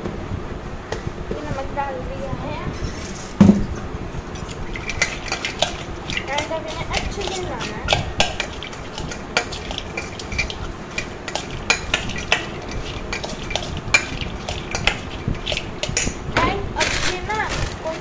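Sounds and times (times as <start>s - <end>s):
spoon clinking and scraping pan: 4.4s - 16.2s
dry snacks rustling: 16.8s - 18.0s.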